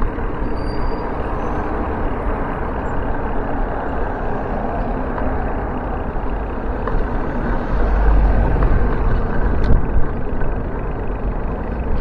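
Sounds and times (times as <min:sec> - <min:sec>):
city street traffic: 0:00.0 - 0:12.0
wind rumble on microphone: 0:00.0 - 0:12.0.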